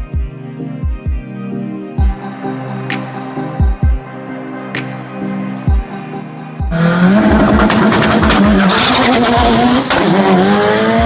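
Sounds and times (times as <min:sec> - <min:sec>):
music with thumping beat: 0:00.0 - 0:01.3, 0:02.0 - 0:02.3, 0:02.9 - 0:04.1, 0:04.7 - 0:06.0, 0:06.6 - 0:11.0
drag car engine at full throttle: 0:06.7 - 0:11.0.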